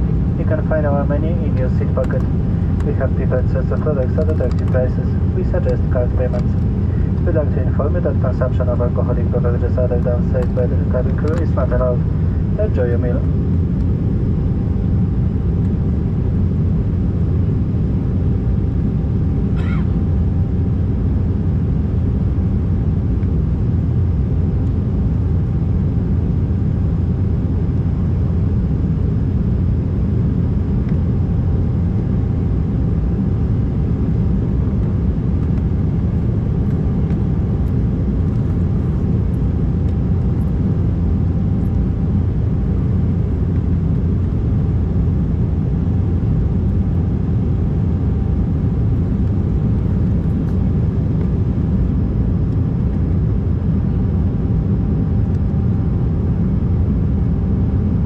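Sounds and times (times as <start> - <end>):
faint steady whine: 0.0 - 58.0
jet engine drone in cabin: 0.0 - 58.0
airflow: 1.4 - 3.7, 6.6 - 7.3, 11.9 - 12.8.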